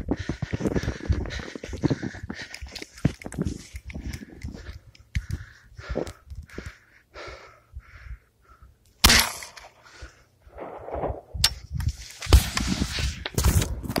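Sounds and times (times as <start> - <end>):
shotgun firing: 9.0 - 9.7.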